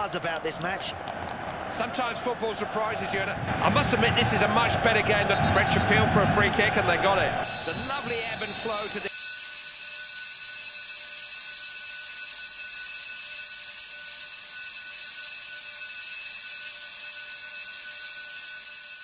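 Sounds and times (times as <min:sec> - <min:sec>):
shrill electronic alarm tone: 0:07.4 - 0:19.0.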